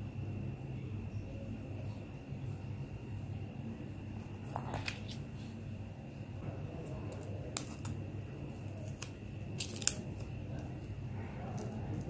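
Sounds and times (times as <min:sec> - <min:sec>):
steady low hum: 0:00.0 - 0:12.0
plastic packaging crackling: 0:08.6 - 0:10.8.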